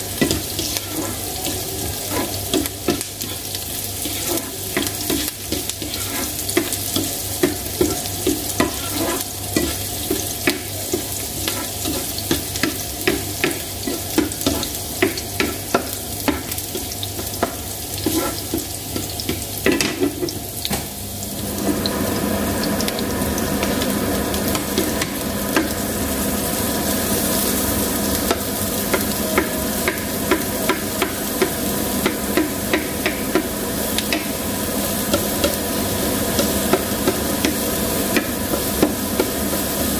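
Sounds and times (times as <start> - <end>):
steady electrical hum: 0.0 - 19.6
onion and garlic frying in a pan: 0.0 - 39.9.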